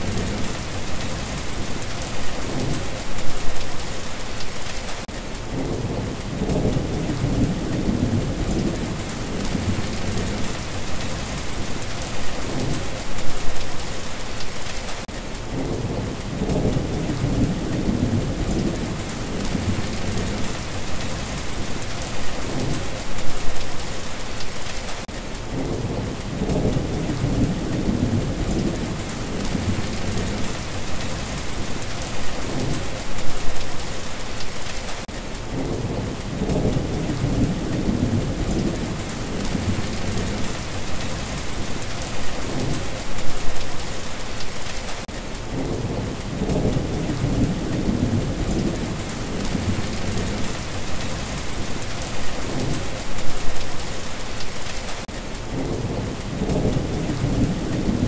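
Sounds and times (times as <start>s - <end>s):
heavy rain: 0.0s - 58.0s
low rolling thunder: 5.5s - 13.1s, 15.5s - 23.3s, 25.5s - 33.6s, 35.5s - 43.1s, 45.5s - 53.6s, 55.5s - 58.0s.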